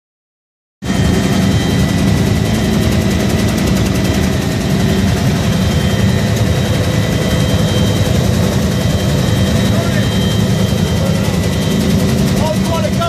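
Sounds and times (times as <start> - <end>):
helicopter rotor and engine rumble: 0.8 - 13.0
high-pitched whines: 0.9 - 13.0.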